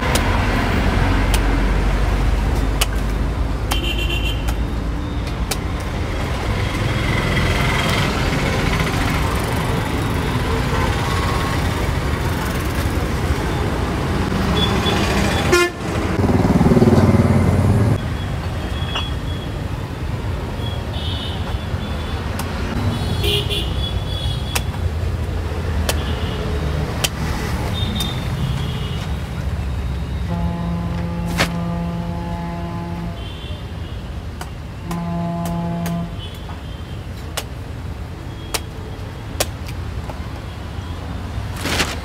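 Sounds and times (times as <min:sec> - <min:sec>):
busy street traffic: 0:00.0 - 0:42.0
machete chopping coconut husk: 0:02.6 - 0:04.7, 0:25.8 - 0:26.1
vehicle horns tooting: 0:03.7 - 0:04.6, 0:14.5 - 0:16.0, 0:22.8 - 0:24.7, 0:30.1 - 0:34.1, 0:34.8 - 0:37.0.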